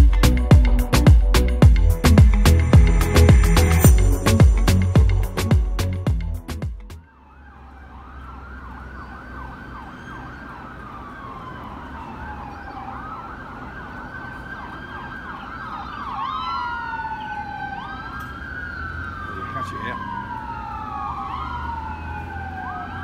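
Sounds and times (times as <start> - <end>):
ambulance siren: 0.0 - 6.0, 7.0 - 23.0
second siren tone: 7.0 - 13.0.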